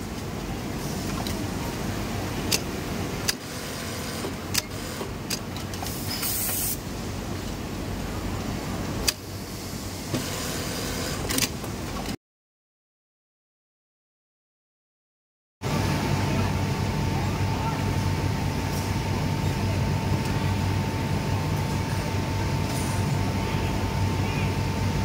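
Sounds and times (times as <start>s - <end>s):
industrial sewing machines humming: 0.0s - 11.4s
brief high hiss: 5.9s - 6.8s.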